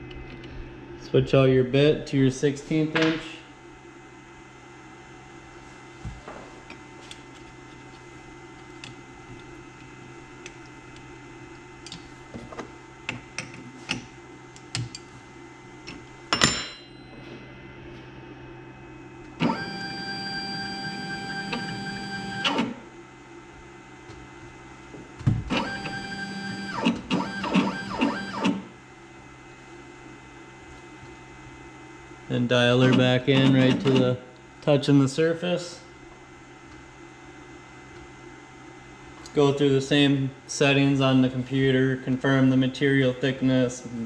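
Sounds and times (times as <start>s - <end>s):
stepper motors whining: 25.5s - 28.6s.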